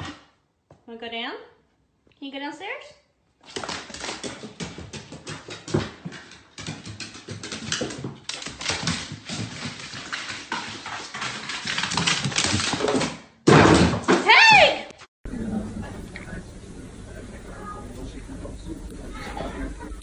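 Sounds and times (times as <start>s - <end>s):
dog claws tapping on wooden stairs: 3.4s - 13.2s.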